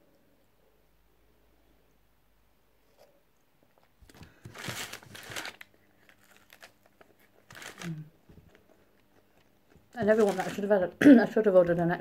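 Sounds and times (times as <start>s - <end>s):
paper wrapper crinkling: 4.0s - 10.8s.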